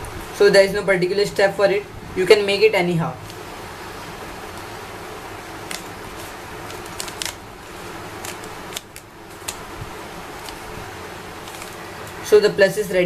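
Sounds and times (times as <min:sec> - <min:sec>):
puzzle cube clicking: 0:05.6 - 0:07.4, 0:08.2 - 0:09.6, 0:10.4 - 0:10.7, 0:11.4 - 0:12.2.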